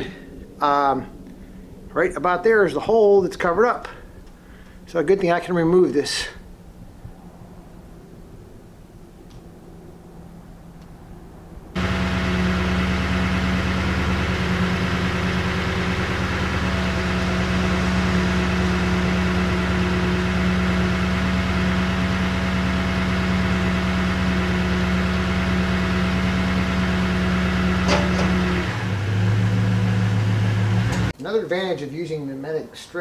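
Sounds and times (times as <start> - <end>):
pickup engine idling: 11.5 - 31.1.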